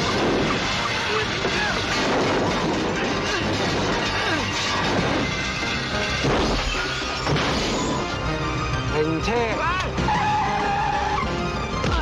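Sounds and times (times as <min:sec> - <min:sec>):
cars crashing: 0:00.0 - 0:08.2
glass breaking: 0:00.0 - 0:08.2.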